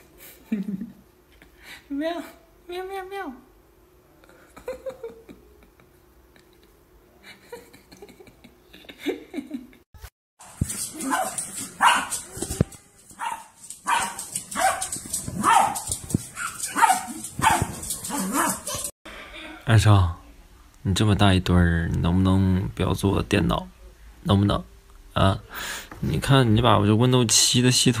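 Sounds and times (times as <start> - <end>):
small dog barking: 10.9 - 18.9.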